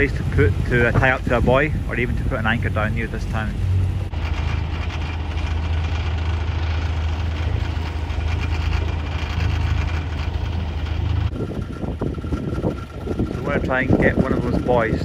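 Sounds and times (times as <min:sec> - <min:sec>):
boat engine humming: 0:00.0 - 0:15.0.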